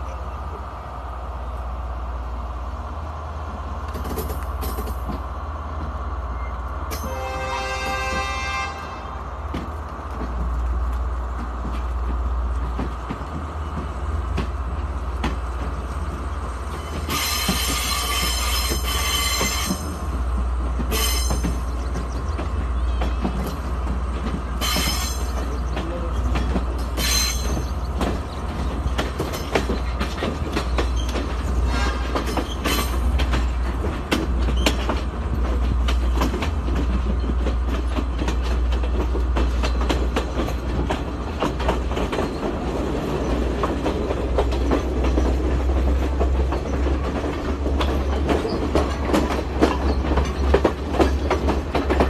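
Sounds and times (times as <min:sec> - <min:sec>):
low train rumble: 0:00.0 - 0:52.0
train wheels rattling on rails: 0:00.0 - 0:52.0
wheel squeals: 0:30.7 - 0:33.1.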